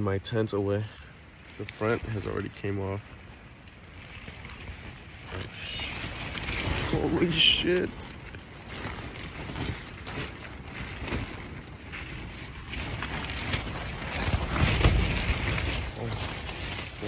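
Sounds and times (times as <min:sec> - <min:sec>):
wind rumbling on microphone: 0:00.0 - 0:17.0
wind shaking tent fabric: 0:00.0 - 0:17.0.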